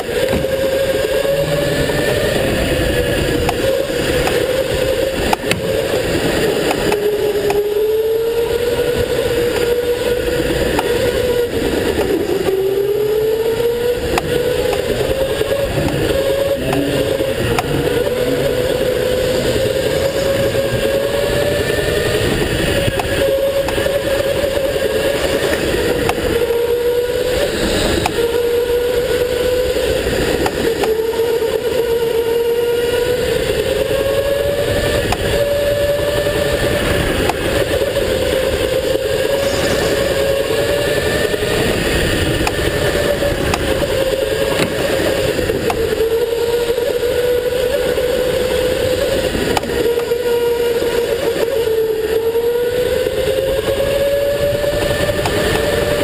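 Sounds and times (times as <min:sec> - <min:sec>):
go-kart motor running: 0:00.0 - 0:56.0.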